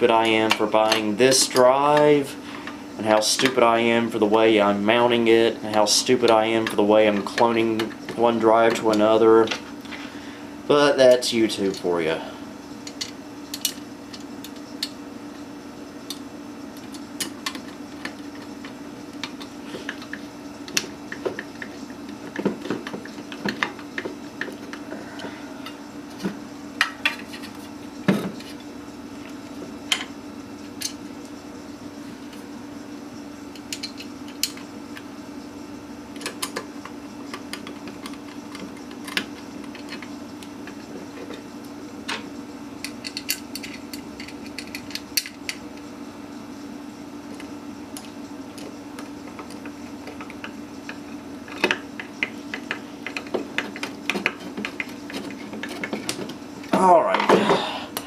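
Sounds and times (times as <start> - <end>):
low hum: 24.0 - 30.0.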